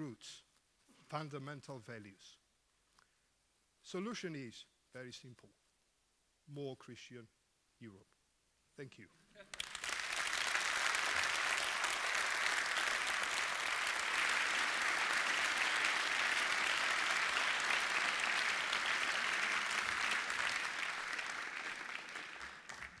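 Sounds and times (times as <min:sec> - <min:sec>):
large audience applauding: 0:09.5 - 0:23.0.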